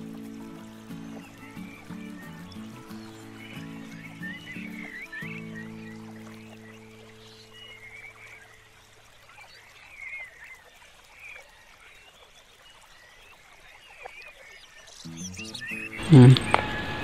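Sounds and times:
light hiss: 0:00.0 - 0:11.3
birds chirping: 0:00.0 - 0:17.0.

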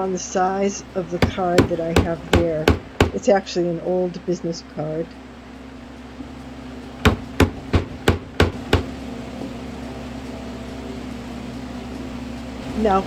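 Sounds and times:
steady low hum: 0:00.0 - 0:13.0
strikes on wood chisel: 0:07.0 - 0:08.9.

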